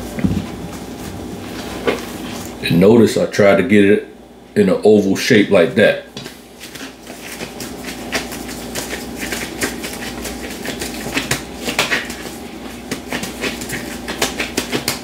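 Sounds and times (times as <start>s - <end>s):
wet slaps of meat patted by hands: 6.2s - 15.0s.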